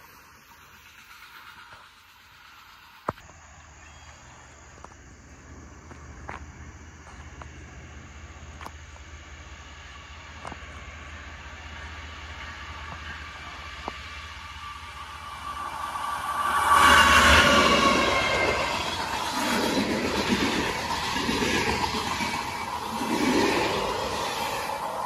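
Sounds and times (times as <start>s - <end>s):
diesel locomotive engine rumble: 0.0s - 25.0s.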